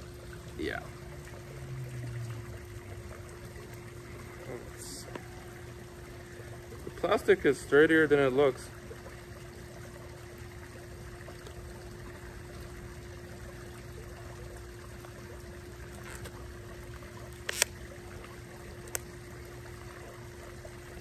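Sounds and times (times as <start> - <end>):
faint hum: 0.0 - 21.0
plastic packaging pried open: 15.9 - 16.4, 17.3 - 17.8.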